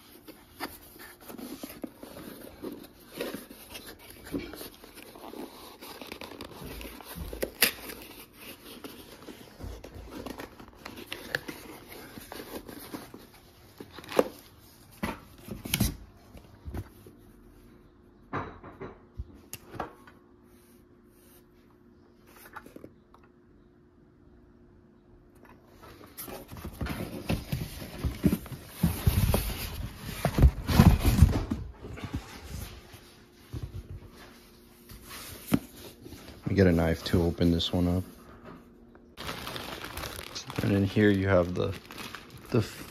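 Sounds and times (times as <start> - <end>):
cardboard packaging rustling: 0.0 - 17.2, 25.9 - 38.1, 39.2 - 42.9.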